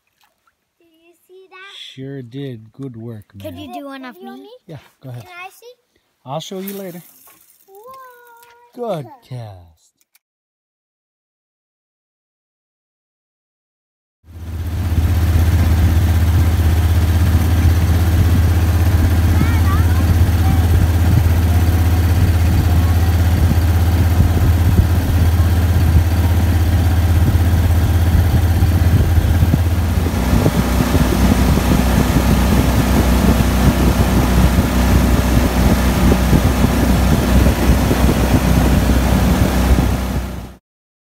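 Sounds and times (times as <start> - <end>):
boat motor running: 14.3 - 40.6.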